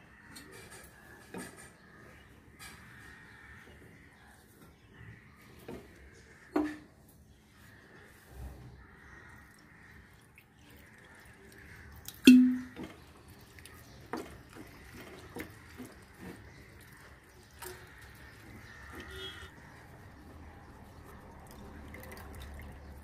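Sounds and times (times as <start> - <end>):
hand mixing wet curds: 7.3 - 23.0
water pouring over curds: 8.9 - 23.0.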